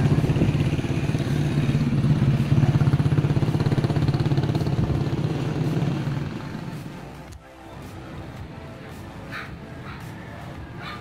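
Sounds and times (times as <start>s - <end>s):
small engine droning: 0.0s - 8.8s.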